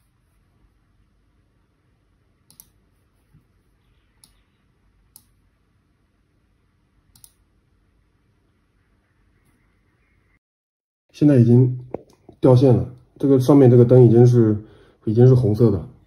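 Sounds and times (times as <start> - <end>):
laptop mouse clicks: 2.5 - 2.8, 7.1 - 7.4.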